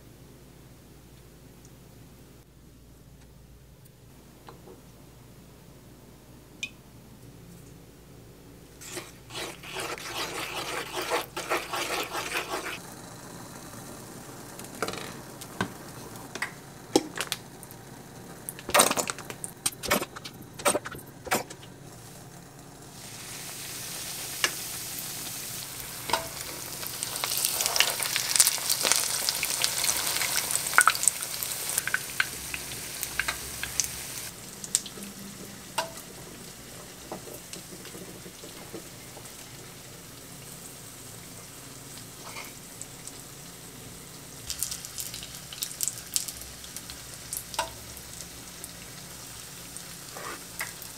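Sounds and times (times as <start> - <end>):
stirring: 8.8 - 12.8
frying pan sizzling: 8.8 - 50.9.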